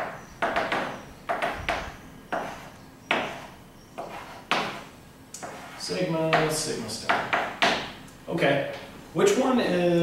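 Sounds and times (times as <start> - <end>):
chalk striking a blackboard: 0.0 - 8.0.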